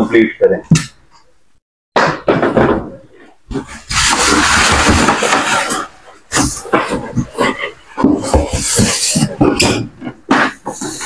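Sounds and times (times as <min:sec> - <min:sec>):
foam and plastic wrap rustling: 0:03.6 - 0:09.7.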